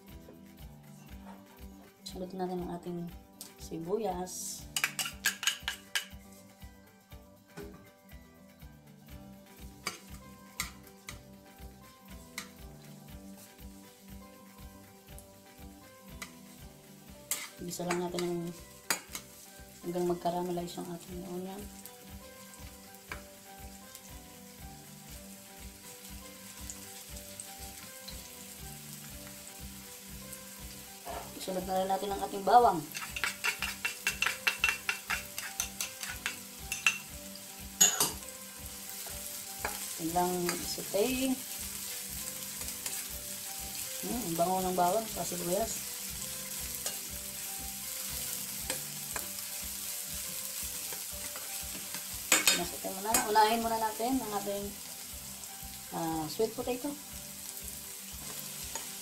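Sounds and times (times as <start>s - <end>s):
soft background music: 0.0s - 59.0s
onion sizzling in oil: 3.7s - 6.8s, 9.2s - 59.0s
spatula clicking against pan: 4.8s - 6.1s, 9.8s - 11.3s, 12.4s - 12.6s, 32.9s - 37.1s
spatula stirring in pan: 4.8s - 6.5s, 12.1s - 14.2s, 16.0s - 19.8s, 32.8s - 37.1s, 37.8s - 53.6s, 57.5s - 59.0s
spatula scraping pan: 17.2s - 19.4s, 32.8s - 37.1s.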